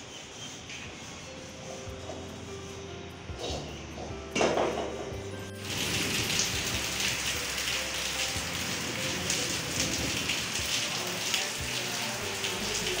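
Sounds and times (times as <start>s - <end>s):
steady rain falling: 5.1s - 13.0s.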